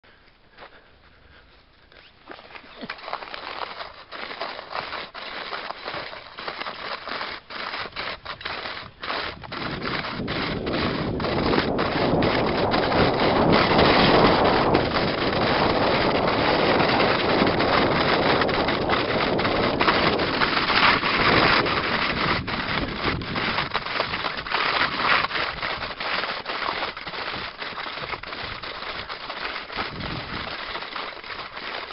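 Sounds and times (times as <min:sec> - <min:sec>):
scraping and crunching over snow: 0:01.8 - 0:31.9
wind buffeting microphone: 0:07.8 - 0:26.0, 0:29.7 - 0:30.6.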